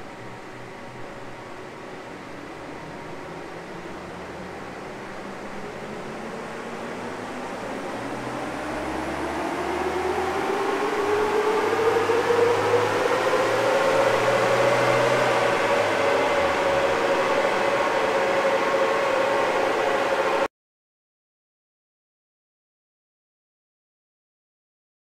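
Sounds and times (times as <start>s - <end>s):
diesel engine revving on dyno: 8.1s - 20.4s.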